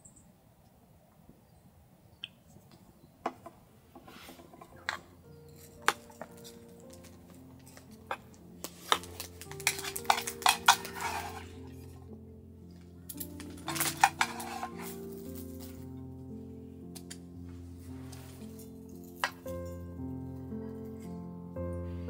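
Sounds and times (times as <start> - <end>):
soft background music: 4.2 - 22.0
tableware clinking: 4.3 - 12.0, 13.1 - 16.0, 18.5 - 20.0.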